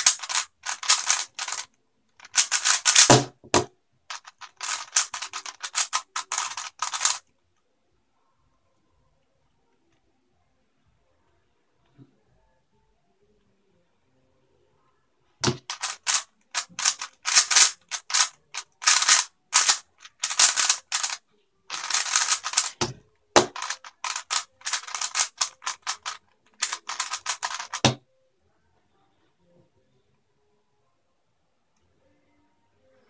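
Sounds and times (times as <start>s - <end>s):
puzzle cube clacking: 0.0s - 7.2s, 15.4s - 28.0s
cube thumping on table: 2.4s - 3.7s, 15.4s - 16.2s, 21.8s - 25.3s, 26.6s - 28.0s.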